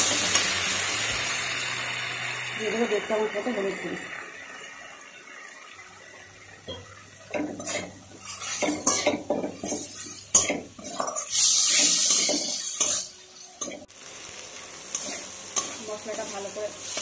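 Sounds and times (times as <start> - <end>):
metal spatula scraping a pan: 7.4 - 13.8.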